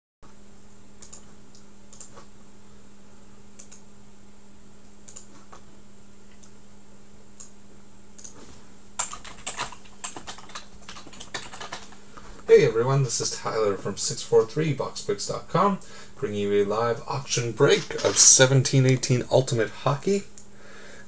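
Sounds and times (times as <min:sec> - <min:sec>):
low electrical hum: 0:00.2 - 0:21.0
keyboard keys clicking: 0:09.0 - 0:12.0.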